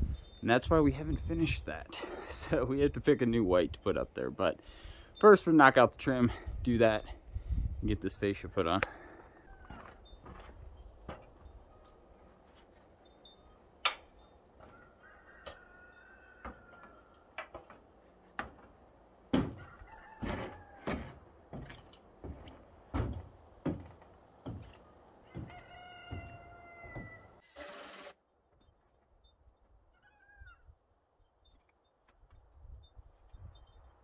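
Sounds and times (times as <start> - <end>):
rooster crowing: 9.3 - 10.0, 14.6 - 17.3, 19.5 - 21.1, 25.2 - 27.4
boots on metal ladder and roof: 9.6 - 13.0, 13.9 - 27.4.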